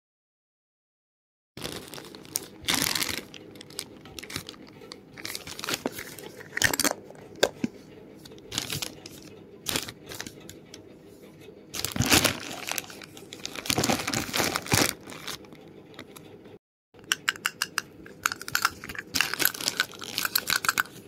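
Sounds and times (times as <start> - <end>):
paper and plastic crinkling: 1.6 - 7.0, 8.5 - 10.4, 11.8 - 16.2, 18.6 - 21.0.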